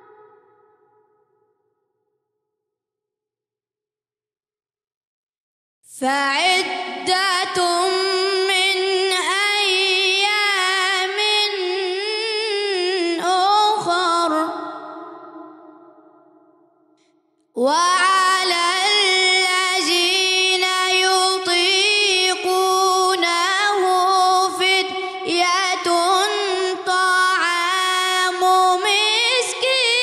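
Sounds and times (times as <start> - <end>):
boy reciting melodically: 5.9 - 15.4, 17.6 - 30.0.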